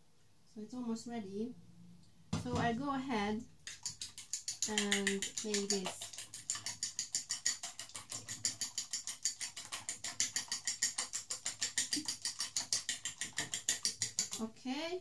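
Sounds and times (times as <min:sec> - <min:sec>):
fork clicking against dish: 0:03.7 - 0:14.4.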